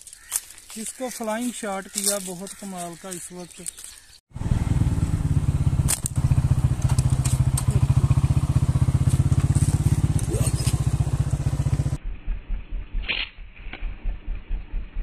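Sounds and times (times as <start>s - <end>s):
small engine thumping: 4.6s - 12.0s.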